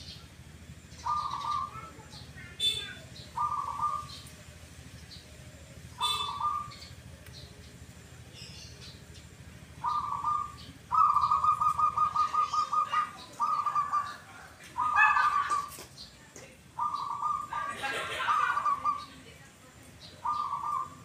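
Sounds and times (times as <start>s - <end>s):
dove cooing: 0.9s - 7.8s, 8.4s - 15.8s, 16.7s - 19.4s, 20.0s - 21.0s
faint bird chirps: 0.9s - 16.2s.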